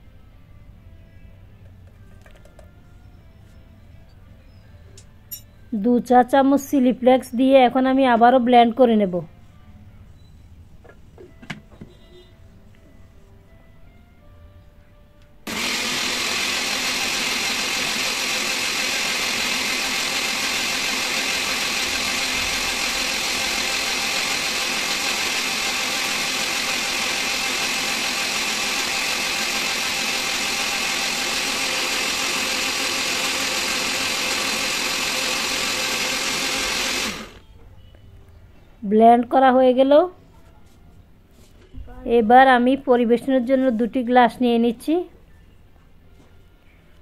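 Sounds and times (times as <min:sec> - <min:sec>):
electric blender running: 0:15.5 - 0:37.4.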